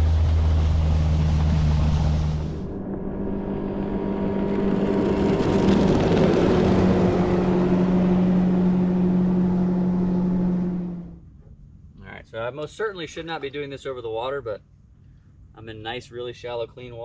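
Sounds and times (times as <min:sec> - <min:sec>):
outboard motor boat passing: 0:00.0 - 0:11.3.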